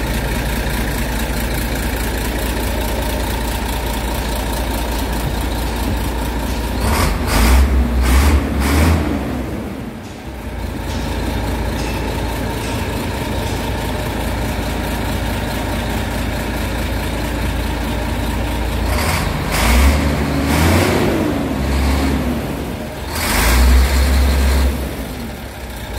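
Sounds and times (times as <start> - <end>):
diesel truck engine idling and revving: 0.0 - 25.9.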